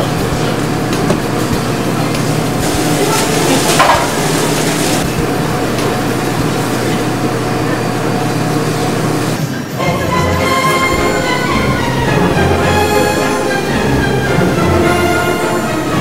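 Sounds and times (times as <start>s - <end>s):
kitchen equipment hum: 0.0s - 9.8s
kitchen clatter: 0.3s - 7.1s.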